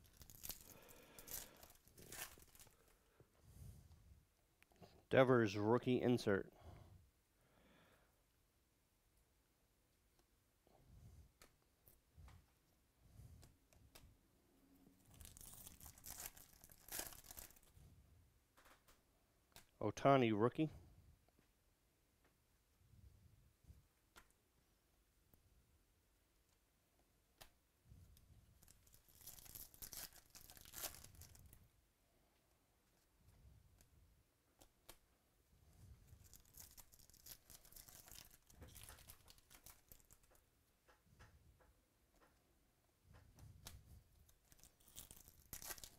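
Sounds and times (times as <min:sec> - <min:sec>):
foil wrapper tearing and crinkling: 0:00.0 - 0:02.9, 0:15.1 - 0:17.7, 0:28.6 - 0:31.6, 0:36.1 - 0:40.4, 0:44.3 - 0:45.9
cards being handled: 0:36.2 - 0:41.3.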